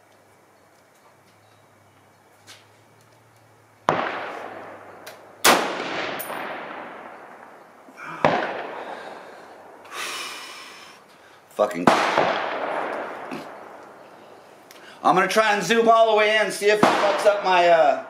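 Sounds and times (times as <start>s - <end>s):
rifle shots echoing: 3.8s - 9.8s, 11.7s - 14.2s, 16.2s - 18.0s.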